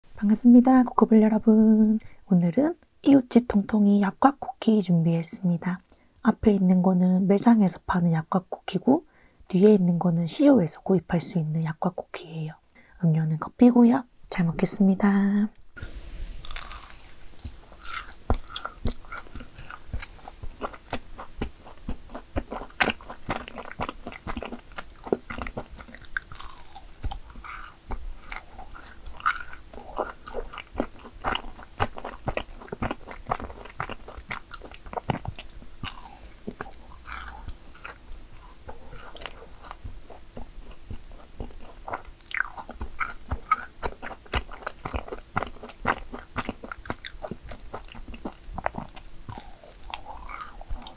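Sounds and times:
person chewing crunchy cookies: 0:16.4 - 0:50.9.

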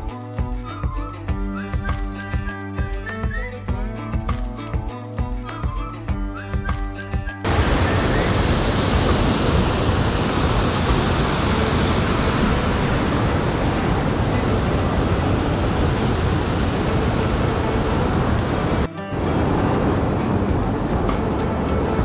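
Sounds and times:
whitewater rushing: 0:07.4 - 0:22.0.

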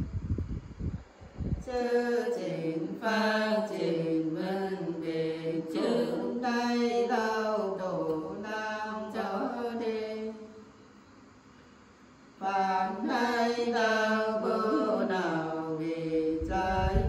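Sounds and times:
women singing unaccompanied: 0:01.6 - 0:10.6, 0:12.4 - 0:17.0.

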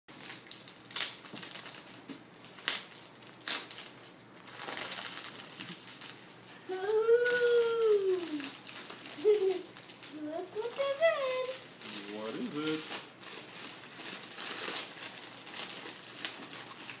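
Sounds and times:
foil wrap crinkling and tearing: 0:00.1 - 0:17.0
child vocalizing: 0:06.7 - 0:08.6, 0:09.2 - 0:11.6.

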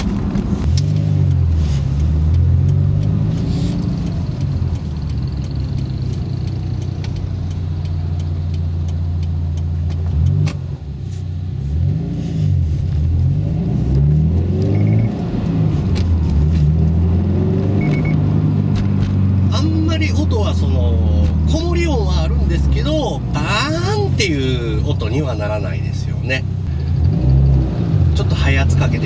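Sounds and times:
car engine accelerating: 0:00.0 - 0:29.0.

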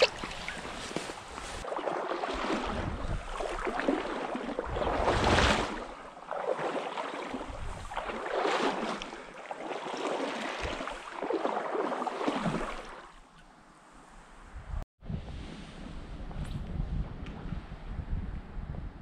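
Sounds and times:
wading through stream water: 0:00.0 - 0:13.4
wind hitting microphone: 0:14.5 - 0:19.0.

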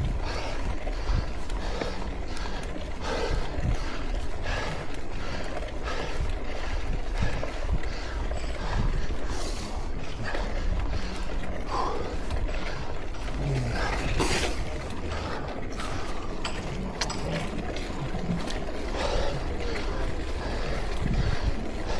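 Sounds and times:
bike rattling: 0:00.0 - 0:21.9
wind buffeting microphone: 0:00.0 - 0:21.9.

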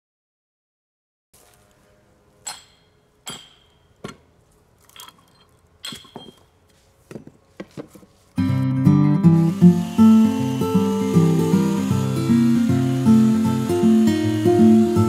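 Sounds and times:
acoustic guitar music: 0:08.4 - 0:15.0.

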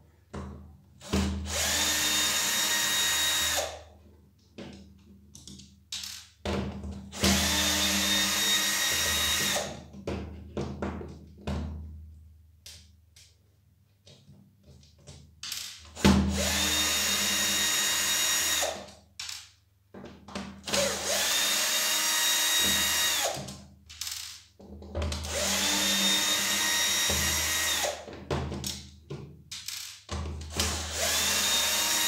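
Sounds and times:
cordless drill motor whining: 0:01.5 - 0:03.8, 0:07.2 - 0:09.7, 0:16.3 - 0:18.8, 0:20.8 - 0:23.4, 0:25.3 - 0:28.0, 0:30.6 - 0:32.0.

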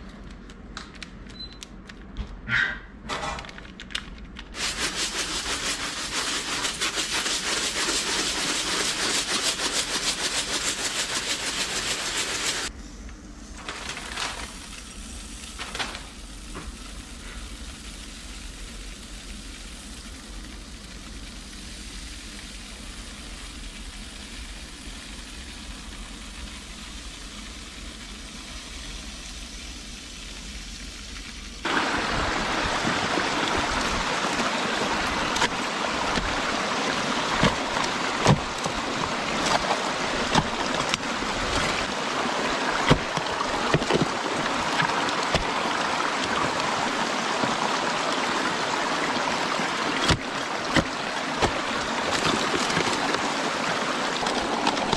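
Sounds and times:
water rushing and splashing: 0:04.6 - 0:12.7, 0:31.6 - 0:54.9.

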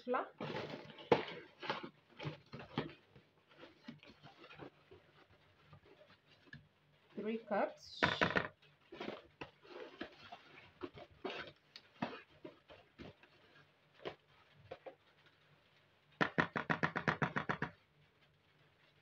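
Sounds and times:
fast stirring of flour: 0:08.6 - 0:15.0.

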